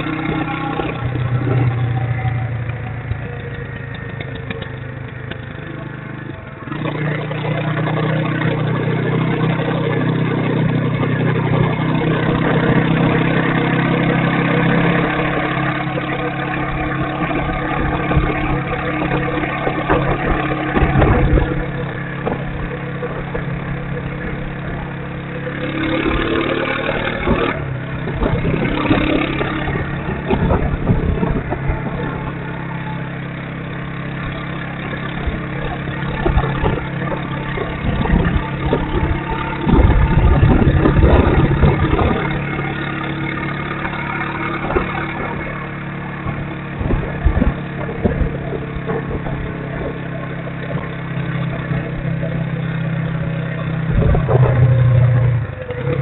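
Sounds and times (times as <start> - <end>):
motorcycle engine running: 0.0 - 56.0
wind on microphone: 16.8 - 24.9, 27.2 - 33.1, 35.2 - 42.8, 44.0 - 52.6, 53.5 - 56.0.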